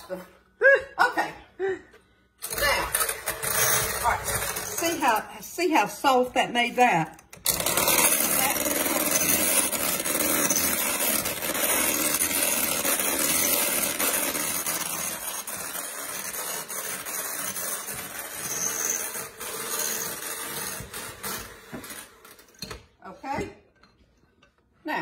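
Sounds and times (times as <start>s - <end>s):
electric hand mixer whirring: 7.3s - 22.5s.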